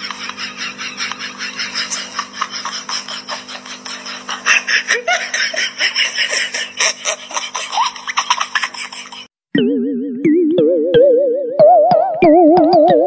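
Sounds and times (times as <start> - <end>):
person laughing: 0.0 - 9.3.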